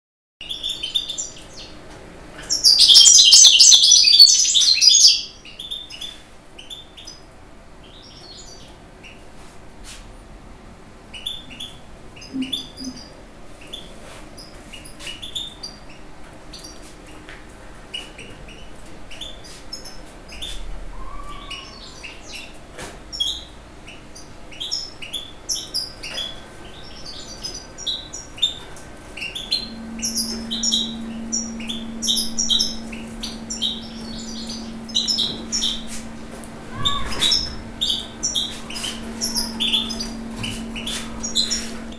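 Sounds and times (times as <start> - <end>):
goldfinch twittering song: 2.4 - 7.2, 29.2 - 41.9
short high bird chirps: 2.5 - 5.4, 29.3 - 41.9.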